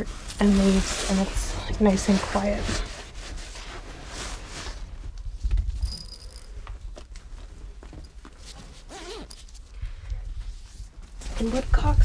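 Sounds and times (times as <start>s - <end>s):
rustling and light knocks: 0.2s - 9.6s.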